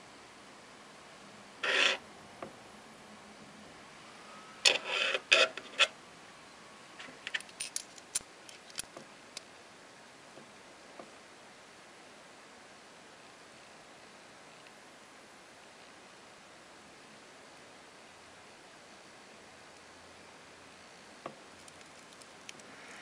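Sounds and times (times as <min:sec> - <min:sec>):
rubbing on wristwatch: 0:01.6 - 0:02.0, 0:04.7 - 0:05.9.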